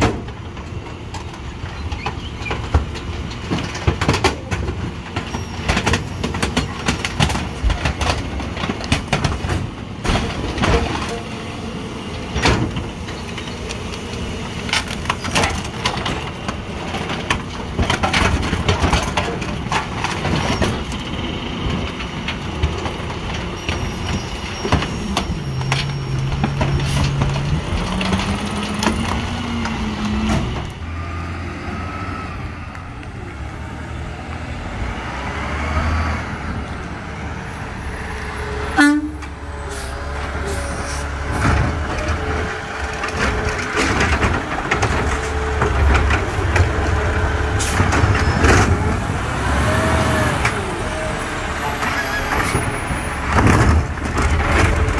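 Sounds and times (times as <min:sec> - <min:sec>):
trash knocking and clanging: 0:00.0 - 0:11.3, 0:12.2 - 0:13.5, 0:14.6 - 0:30.8, 0:41.2 - 0:49.1, 0:51.7 - 0:54.9
garbage truck low drone: 0:20.2 - 0:54.9
truck engine revving: 0:25.1 - 0:54.9.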